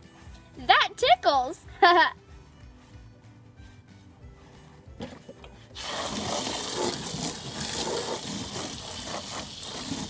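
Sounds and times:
scrub brush rubbing plastic: 5.8s - 10.0s
water spray hitting plastic: 5.8s - 10.0s.

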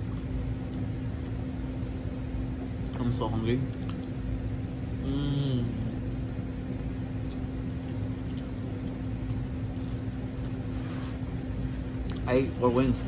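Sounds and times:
steady low hum: 0.0s - 13.0s
man humming: 5.0s - 6.0s
man chewing: 7.2s - 12.3s.

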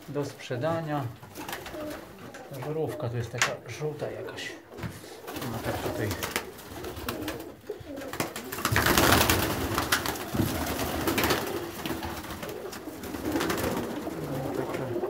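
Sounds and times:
pigeons cooing: 0.0s - 15.0s
wings flapping: 1.1s - 15.0s.

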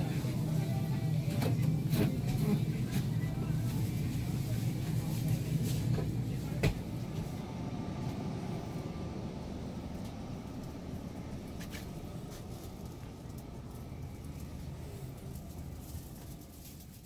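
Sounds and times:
indoor store hum: 0.0s - 17.0s.

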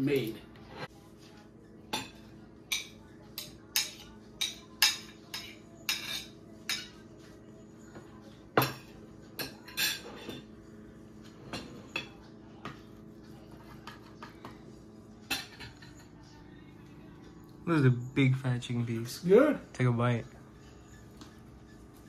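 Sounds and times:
cutlery and plates clinking: 1.8s - 7.2s, 7.9s - 10.6s, 11.2s - 12.8s, 13.5s - 16.4s.

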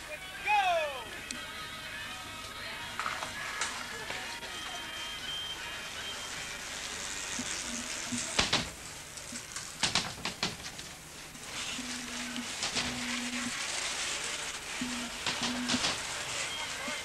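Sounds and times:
videotape hiss: 0.0s - 17.0s
sharp crackling clicks: 7.4s - 11.0s, 14.6s - 16.4s.

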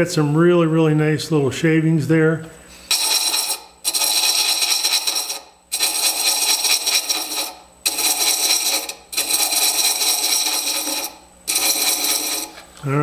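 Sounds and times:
thread chaser scraping wood: 2.8s - 12.7s.

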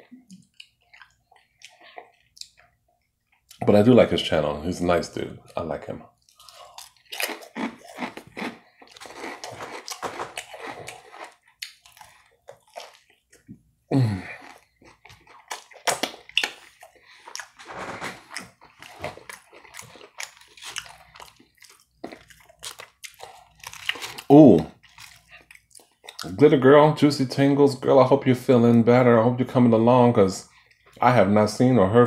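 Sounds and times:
person chewing food: 0.0s - 3.6s, 6.2s - 26.3s.

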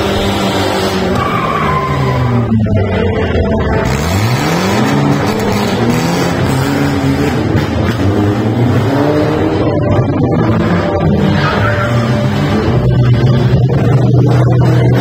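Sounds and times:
vehicle engine revving hard: 3.7s - 15.0s.

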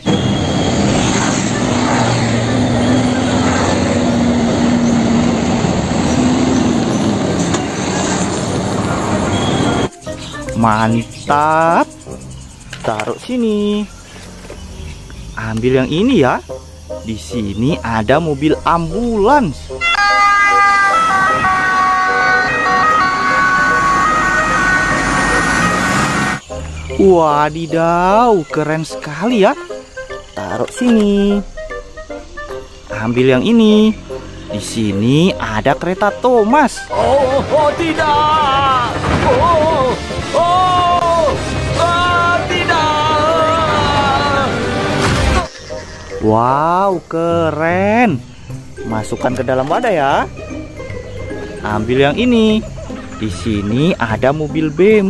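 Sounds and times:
truck diesel engine passing: 0.0s - 9.9s, 11.8s - 27.0s, 31.3s - 46.4s
two-tone ambulance siren: 0.0s - 9.9s, 19.8s - 26.4s
road noise: 0.0s - 55.0s
traffic noise: 0.0s - 55.0s.

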